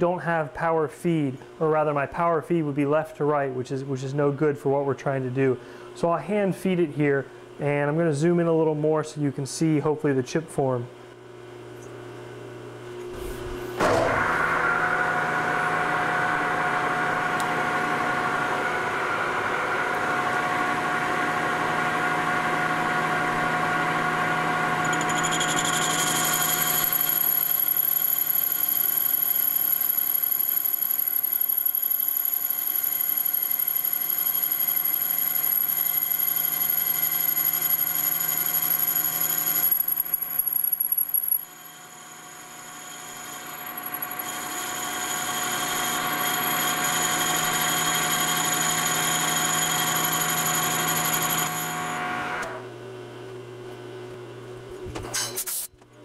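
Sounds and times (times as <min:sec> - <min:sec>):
metal lathe whining: 0:24.2 - 0:52.6.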